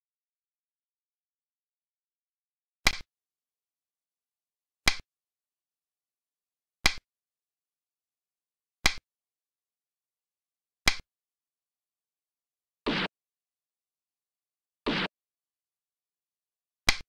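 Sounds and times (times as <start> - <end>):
game piece clicking on board: 6.8 - 7.0, 8.8 - 9.0.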